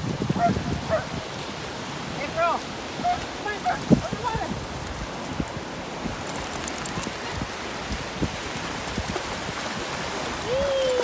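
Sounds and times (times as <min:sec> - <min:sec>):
shallow surf washing up beach: 0:00.0 - 0:11.0.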